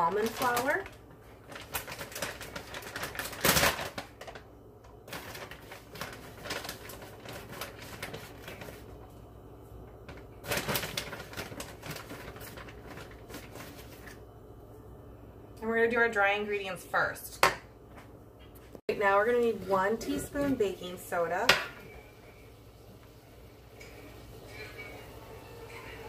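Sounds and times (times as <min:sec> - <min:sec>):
plastic bag crinkling: 0:00.0 - 0:09.1, 0:10.0 - 0:14.2.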